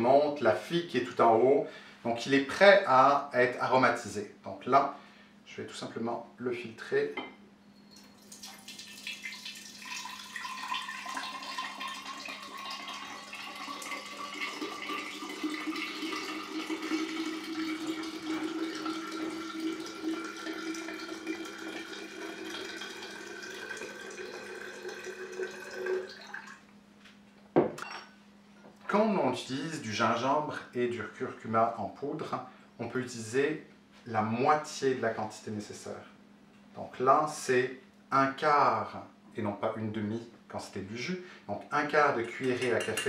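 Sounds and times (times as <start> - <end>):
liquid trickling into glass jar: 7.8 - 26.6.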